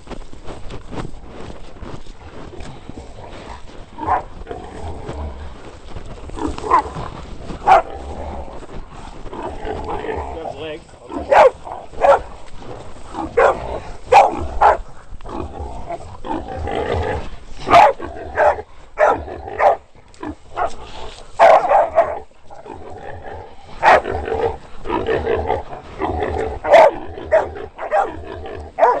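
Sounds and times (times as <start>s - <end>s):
dogs barking: 4.0s - 4.3s, 6.6s - 6.9s, 7.6s - 8.0s, 11.1s - 12.3s, 13.3s - 14.8s, 17.7s - 19.9s, 21.4s - 22.3s, 23.8s - 24.2s, 26.6s - 29.0s.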